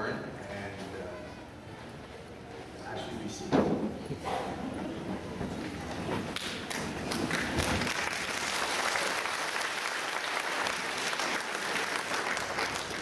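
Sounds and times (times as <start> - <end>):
congregation applauding: 6.4 - 13.0.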